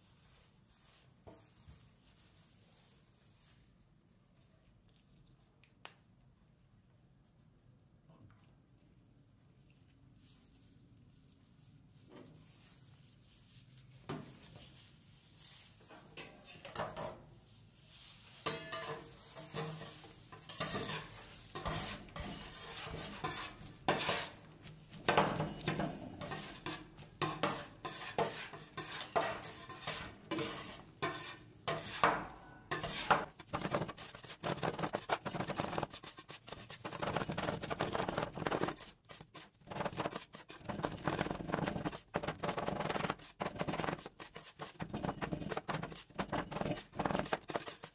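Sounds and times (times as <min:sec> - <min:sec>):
metal spatulas tapping and scraping: 0:15.8 - 0:17.3, 0:18.3 - 0:47.9.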